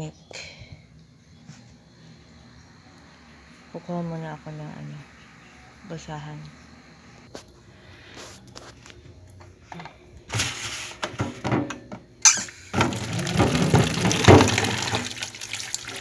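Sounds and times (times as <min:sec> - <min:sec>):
basin knocking in metal sink: 0:12.7 - 0:15.2
tap water running into basin: 0:12.7 - 0:16.0.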